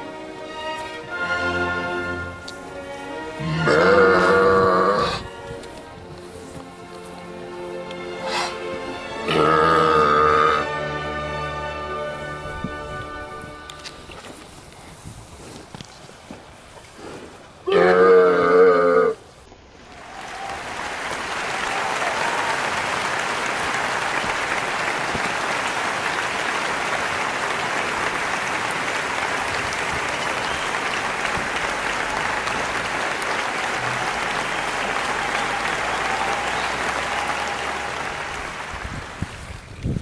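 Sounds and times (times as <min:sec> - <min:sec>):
audience applause: 0:19.8 - 0:39.7.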